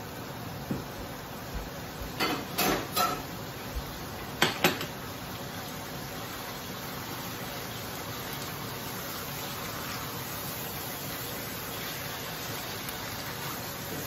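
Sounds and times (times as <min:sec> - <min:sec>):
cookware clinks and scrapes: 0:02.2 - 0:03.3.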